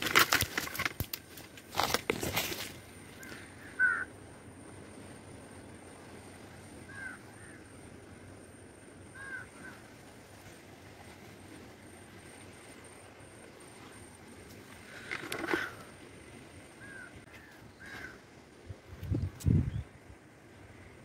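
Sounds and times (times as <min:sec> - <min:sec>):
leaves and twigs crackling: 0:00.0 - 0:03.9
bird giving short calls: 0:03.2 - 0:04.1.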